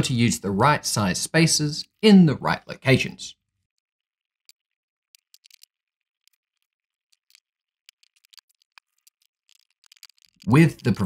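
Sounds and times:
small parts clicking: 3.4 - 11.0.

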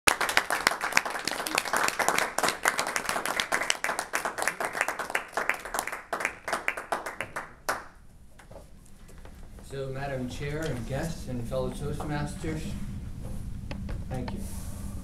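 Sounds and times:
small group applauding: 0.0 - 8.0.

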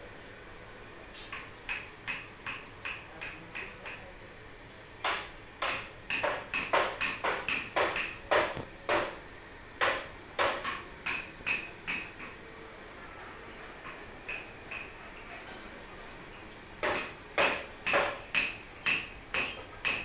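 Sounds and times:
hammer blows with metallic ring: 16.8 - 20.0.

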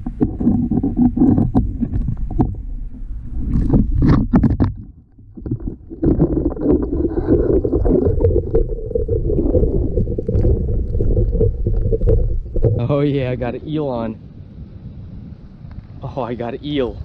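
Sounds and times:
muffled underwater rumble: 0.0 - 17.0.

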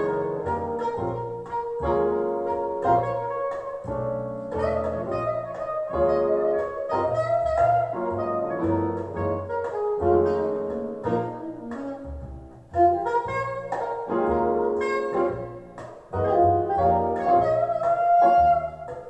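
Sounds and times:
double bass line: 0.0 - 19.0
saxophone: 0.0 - 19.0.

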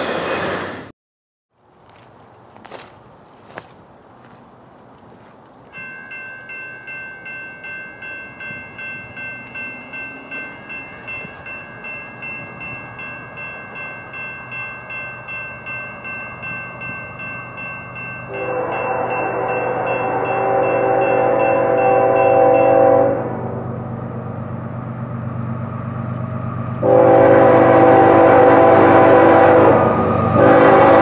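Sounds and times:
railroad crossing warning bell: 5.7 - 31.0.

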